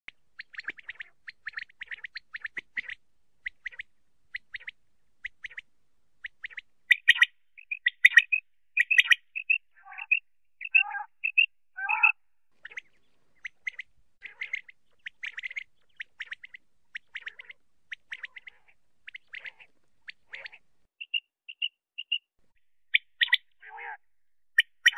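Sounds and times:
quail calling: 6.4s - 22.2s, 22.9s - 24.0s, 24.6s - 24.9s.

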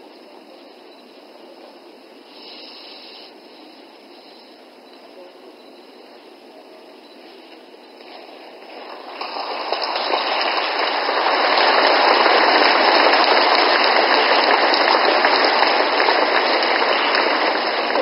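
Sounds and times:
audience applauding: 8.0s - 18.0s.

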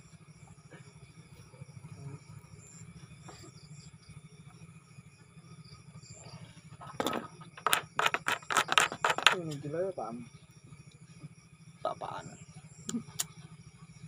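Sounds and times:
night insects chirring: 0.0s - 14.0s
sharp knocks: 6.8s - 9.6s.

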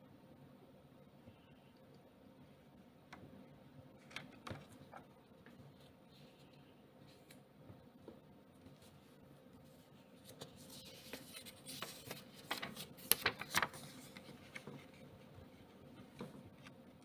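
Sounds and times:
paper banknote crinkling: 10.2s - 15.0s.

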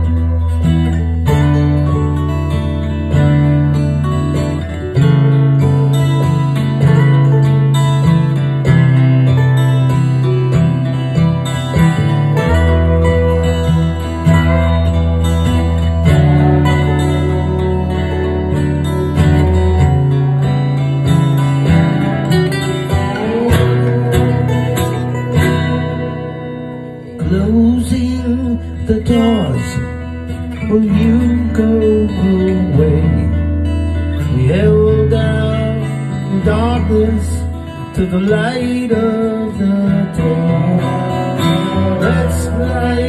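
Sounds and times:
acoustic guitar strumming: 0.0s - 43.0s
pitch-bending melody line: 11.8s - 28.5s.

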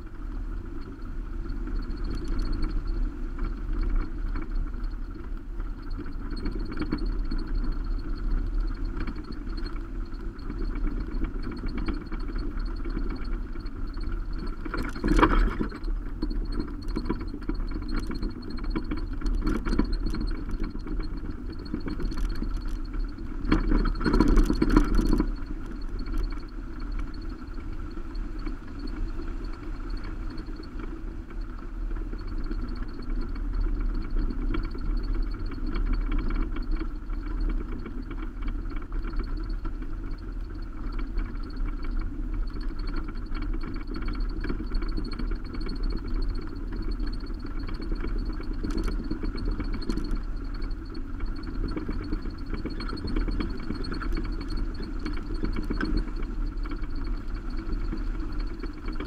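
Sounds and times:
car driving on gravel: 0.0s - 59.0s
faint high whine: 0.0s - 59.0s
small ticks: 0.0s - 59.0s.

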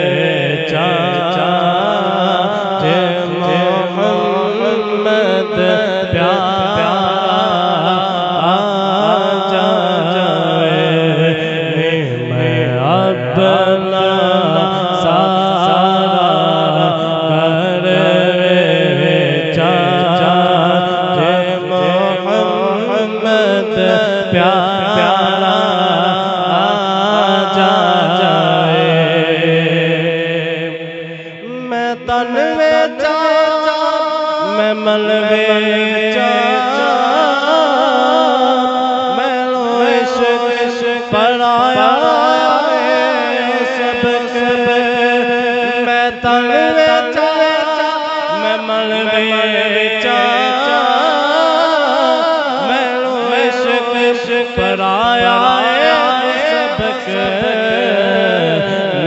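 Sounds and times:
man singing into a microphone: 0.0s - 59.0s.

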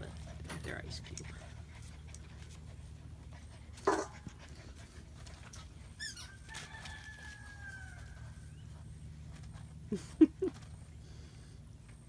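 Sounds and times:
puppy whining: 5.5s - 6.7s
puppy yelp: 6.0s - 6.6s.

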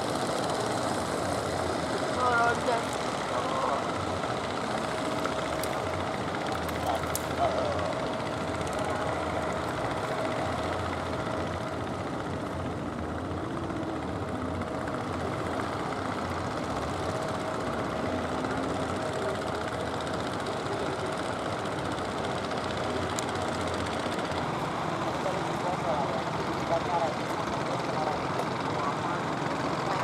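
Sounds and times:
boat engines humming: 0.0s - 30.0s.

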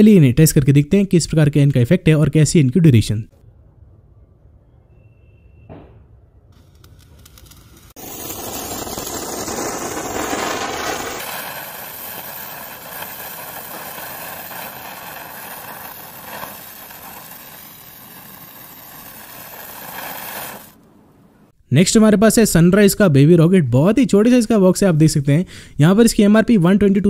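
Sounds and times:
sparkler hissing: 6.6s - 20.8s.

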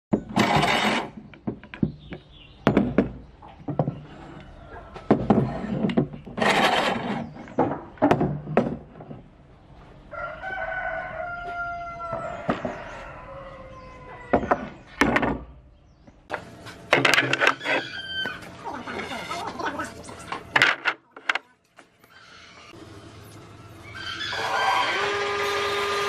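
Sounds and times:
rooster crowing: 10.1s - 14.4s, 17.5s - 18.5s, 23.8s - 26.0s.

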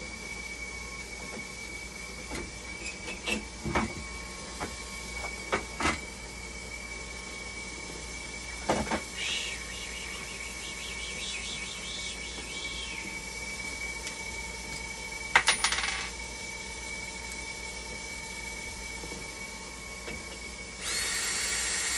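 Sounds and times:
low hum: 9.2s - 14.8s.

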